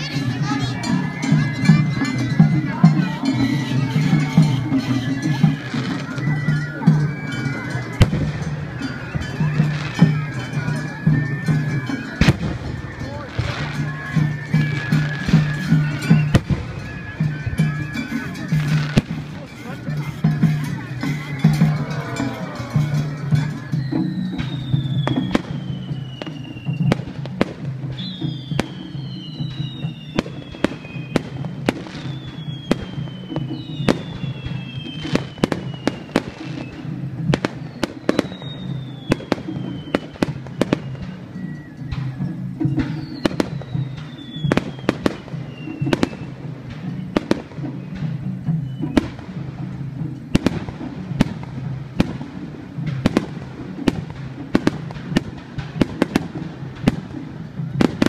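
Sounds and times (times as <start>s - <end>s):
whistling firework shells: 4.7s - 19.8s, 20.6s - 49.4s.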